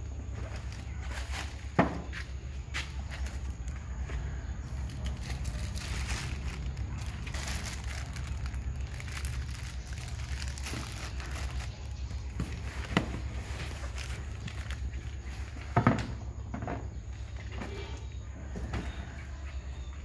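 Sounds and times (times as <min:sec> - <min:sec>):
cardboard and plastic rustling: 0:00.2 - 0:19.4
steady low rumble: 0:02.3 - 0:15.5.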